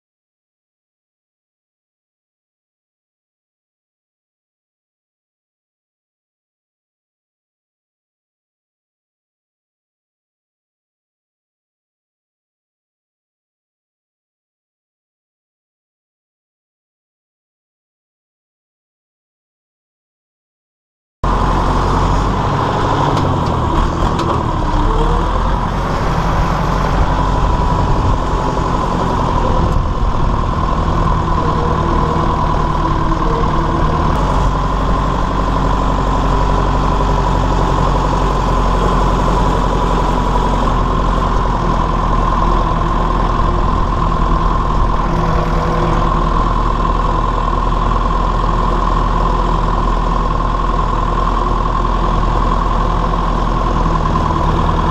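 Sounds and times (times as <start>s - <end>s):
steady whine: 21.2s - 54.9s
tractor diesel engine running: 21.2s - 54.9s.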